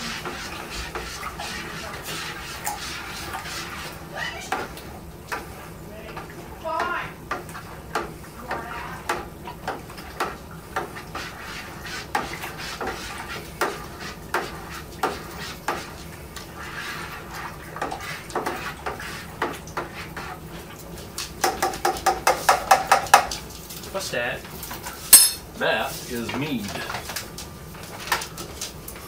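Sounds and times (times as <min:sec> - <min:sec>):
kitchen utensils knocking and clinking: 0:25.2 - 0:25.5.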